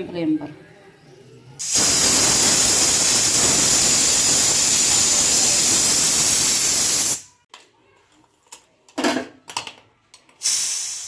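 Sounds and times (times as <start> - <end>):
pressure cooker steam hissing: 1.6 - 7.3, 10.4 - 11.0.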